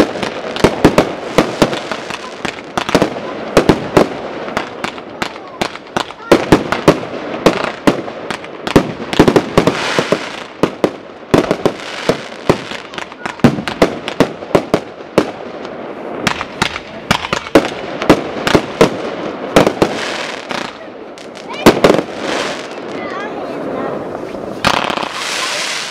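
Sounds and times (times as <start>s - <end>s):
fireworks crackling: 0.0s - 25.9s
firework shells bursting: 24.1s - 25.9s.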